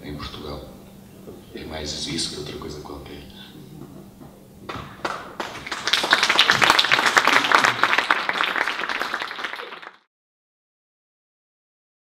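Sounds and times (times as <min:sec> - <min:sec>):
audience applauding: 0:05.0 - 0:10.1.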